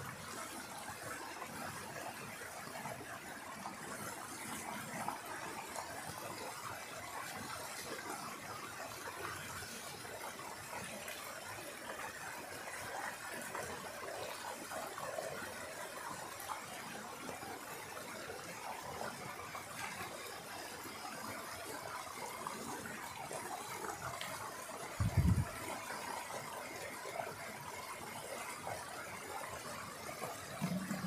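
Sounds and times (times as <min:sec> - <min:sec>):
stream rushing over rocks: 0:00.0 - 0:31.0.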